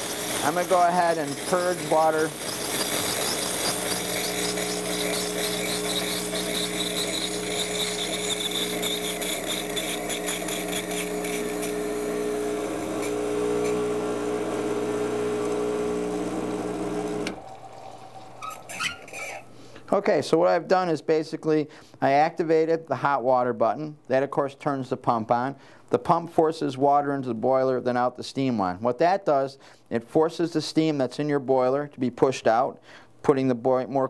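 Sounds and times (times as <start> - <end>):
steam hissing from wand: 0.0 - 13.1
pump humming: 0.0 - 19.6.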